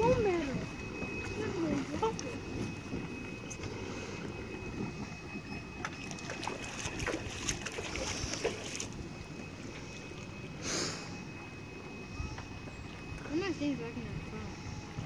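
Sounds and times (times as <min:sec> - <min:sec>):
jet ski engine rumbling: 0:00.0 - 0:15.0.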